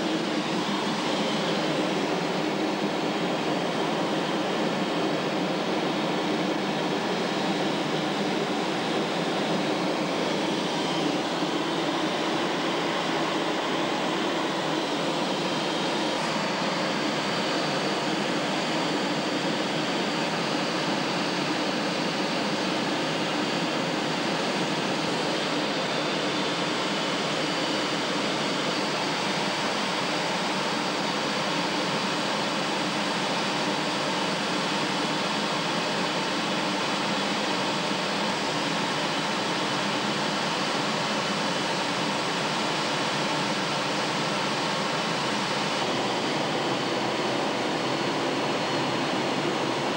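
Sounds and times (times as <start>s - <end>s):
faint high whine: 0.0s - 20.0s
jet engine and airflow rush: 0.0s - 49.9s.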